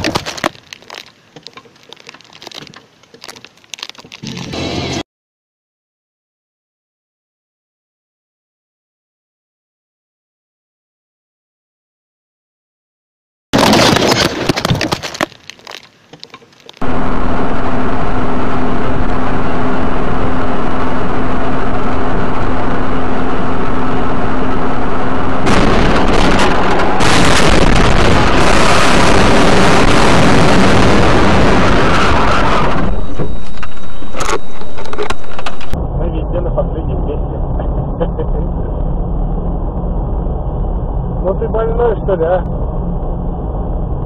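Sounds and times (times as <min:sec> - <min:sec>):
car road noise: 0:00.0 - 0:05.0, 0:13.6 - 0:44.0
car crash noise: 0:13.6 - 0:17.1, 0:25.4 - 0:35.8
low hum: 0:16.6 - 0:44.0.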